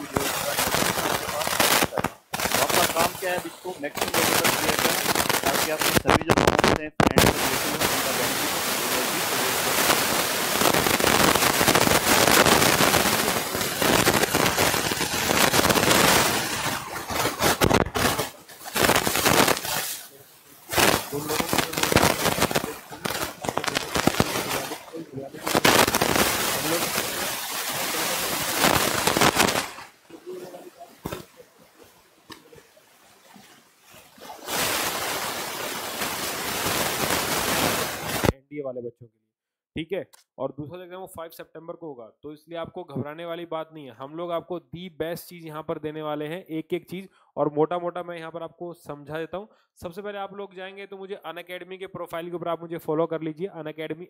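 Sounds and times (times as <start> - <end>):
loud steady hiss: 0.0 - 31.4, 34.3 - 38.4
sharp crackles on microphone: 0.0 - 32.7.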